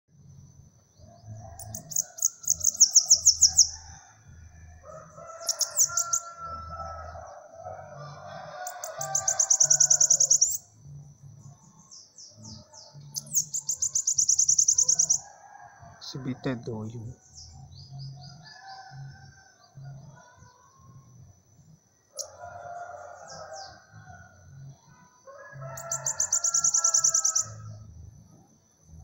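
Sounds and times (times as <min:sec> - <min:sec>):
bird singing rapid trills: 0:01.1 - 0:03.9, 0:05.4 - 0:07.6, 0:08.6 - 0:15.2, 0:23.0 - 0:24.0, 0:25.8 - 0:27.8.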